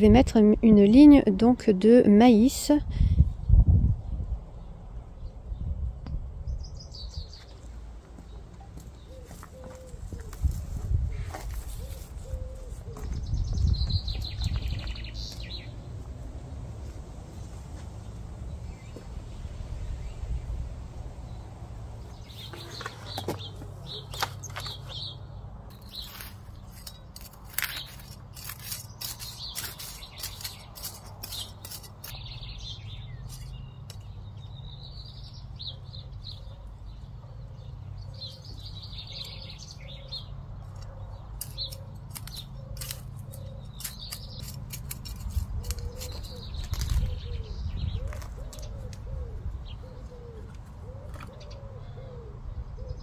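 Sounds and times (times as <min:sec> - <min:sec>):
birds chirping: 0:06.4 - 0:53.0
dove cooing: 0:08.9 - 0:10.6, 0:11.7 - 0:13.2, 0:45.6 - 0:53.0
clicks and snips of plants cut: 0:25.7 - 0:32.2, 0:40.7 - 0:47.2.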